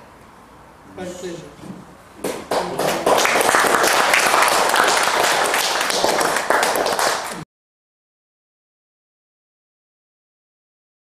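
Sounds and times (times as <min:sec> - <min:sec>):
group applauding: 0:02.2 - 0:07.4.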